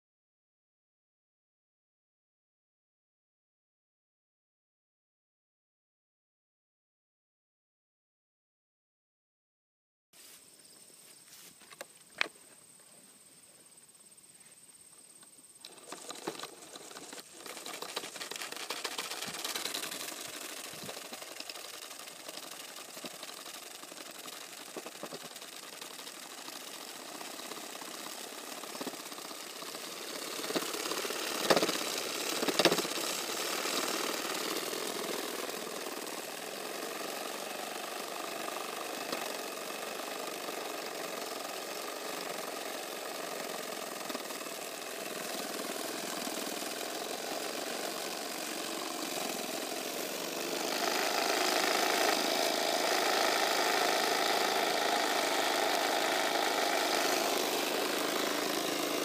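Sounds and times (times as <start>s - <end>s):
model steam engine chuffing: 15.6s - 59.0s.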